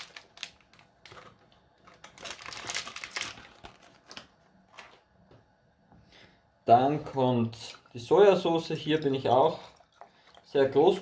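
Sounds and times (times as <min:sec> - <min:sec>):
paper packet rustling and crinkling: 0:00.0 - 0:05.1.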